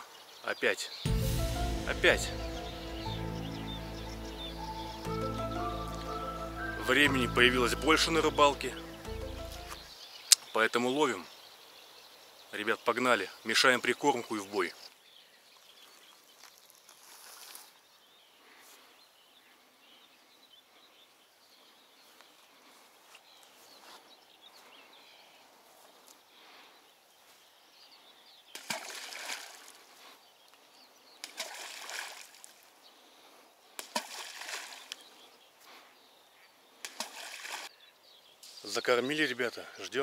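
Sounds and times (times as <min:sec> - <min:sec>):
faint outdoor background: 0:00.0 - 0:40.0
groundbait splashing into water: 0:28.6 - 0:29.8, 0:31.2 - 0:32.7, 0:33.8 - 0:35.0, 0:36.8 - 0:37.7.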